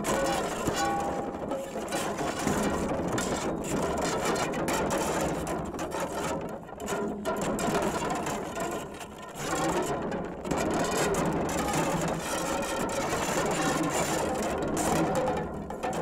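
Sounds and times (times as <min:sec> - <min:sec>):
scraping and rattling against rock: 0:00.0 - 0:16.0.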